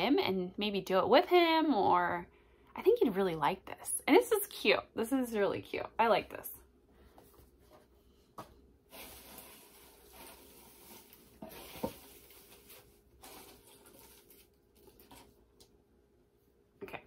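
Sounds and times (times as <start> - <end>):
rustling of packaging: 8.9 - 15.5.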